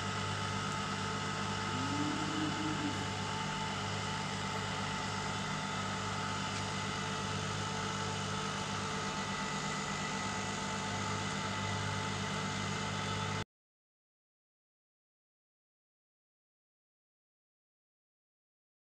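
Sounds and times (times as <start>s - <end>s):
steady machine hum: 0.0s - 13.4s.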